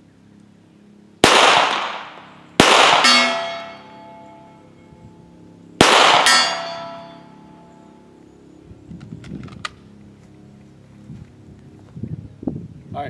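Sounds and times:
pistol shots: 0:01.2 - 0:04.0, 0:05.8 - 0:07.1
bullet clanging on steel plate: 0:03.0 - 0:04.6, 0:06.2 - 0:07.3.

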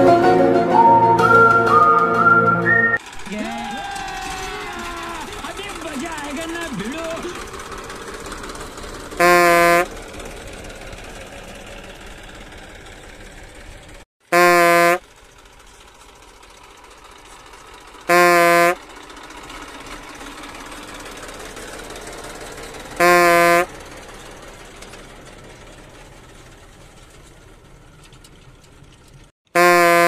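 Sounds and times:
tractor engine running: 0:03.0 - 0:30.0
vehicle horn blasts: 0:09.2 - 0:10.0, 0:14.3 - 0:15.0, 0:18.1 - 0:18.8, 0:23.0 - 0:23.7, 0:29.5 - 0:30.0.

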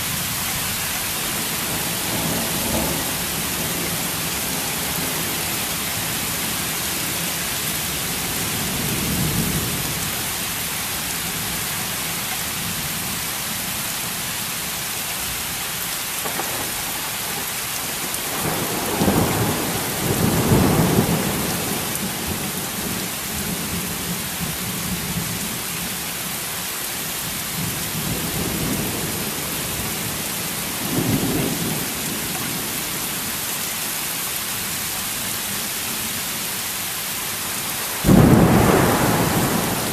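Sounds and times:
heavy rain falling: 0:00.0 - 0:39.9
thunder rumbling: 0:01.2 - 0:10.0, 0:16.2 - 0:25.6, 0:37.9 - 0:39.9.

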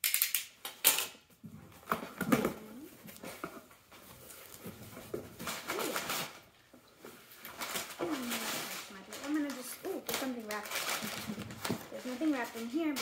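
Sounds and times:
packing paper rustling: 0:02.5 - 0:13.0
cardboard box tearing: 0:05.3 - 0:06.4.

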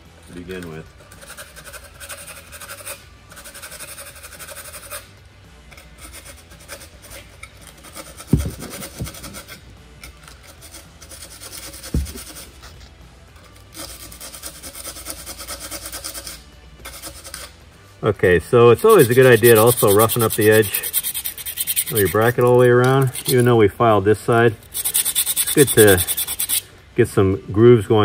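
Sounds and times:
sandpaper scratching: 0:01.1 - 0:05.1, 0:05.8 - 0:09.6, 0:10.3 - 0:12.8, 0:13.7 - 0:17.5, 0:18.7 - 0:23.6, 0:24.6 - 0:26.6
knocks: 0:08.3 - 0:09.4, 0:11.9 - 0:12.4.

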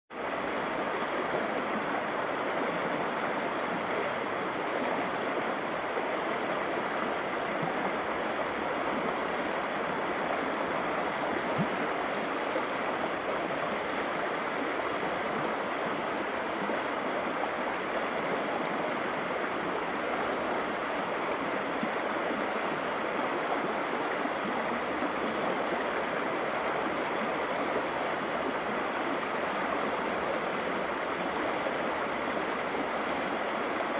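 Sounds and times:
river rushing over rocks: 0:00.2 - 0:33.9.

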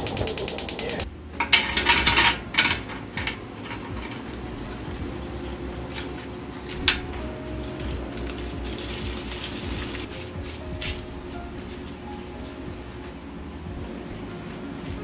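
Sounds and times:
sharp click: 0:00.0 - 0:01.1
dishes and utensils knocking: 0:01.4 - 0:04.4.

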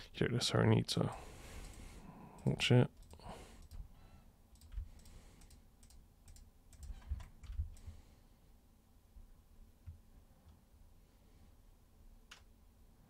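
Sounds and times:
mouse and keyboard clicks: 0:04.6 - 0:07.8.

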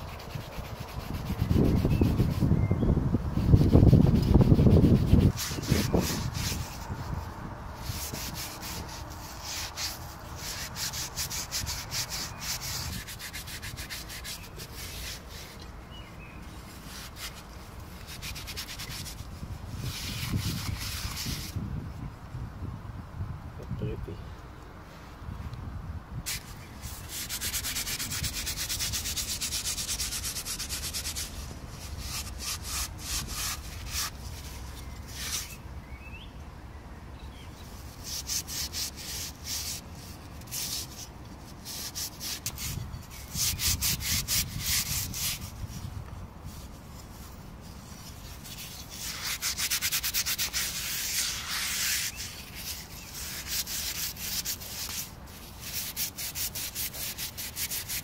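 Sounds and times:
wire pad scrubbing ceramic: 0:47.1 - 0:58.0.

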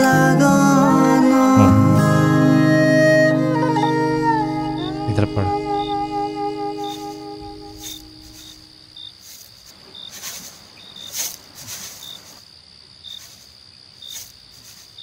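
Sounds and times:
held music chord: 0:00.0 - 0:08.7
crickets chirping: 0:02.7 - 0:15.0.

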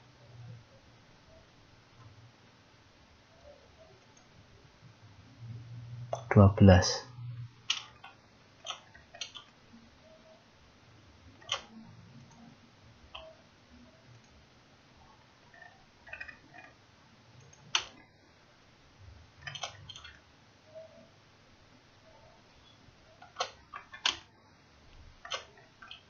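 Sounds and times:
computer mouse and keyboard clicks: 0:07.7 - 0:09.6, 0:11.4 - 0:12.5, 0:15.5 - 0:16.8, 0:17.4 - 0:18.0, 0:19.4 - 0:20.2, 0:23.2 - 0:24.3, 0:25.2 - 0:26.0.

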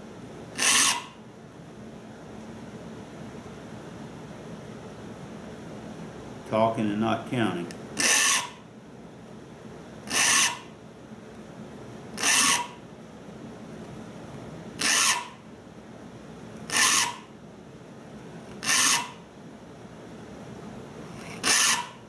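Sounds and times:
file rasping on saw teeth: 0:00.6 - 0:01.2, 0:08.0 - 0:08.6, 0:10.1 - 0:10.7, 0:12.2 - 0:12.8, 0:14.8 - 0:15.4, 0:16.7 - 0:17.3, 0:18.6 - 0:19.2, 0:21.2 - 0:22.0.

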